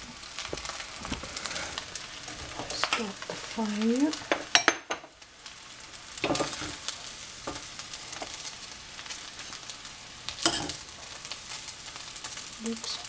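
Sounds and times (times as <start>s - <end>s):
rice sizzling in a pan: 0.0s - 13.0s
spatula scraping and knocking pan: 0.4s - 5.1s, 6.2s - 8.4s, 10.4s - 10.8s.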